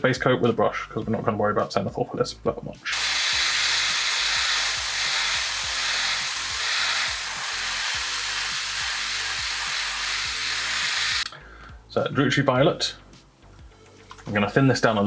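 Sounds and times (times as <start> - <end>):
airbrush spraying paint: 2.9 - 11.3.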